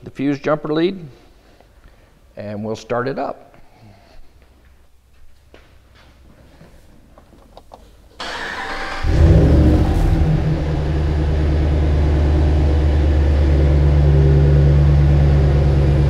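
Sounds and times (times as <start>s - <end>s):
engine cranking and starting: 8.2s - 16.0s
engine idling: 8.2s - 16.0s.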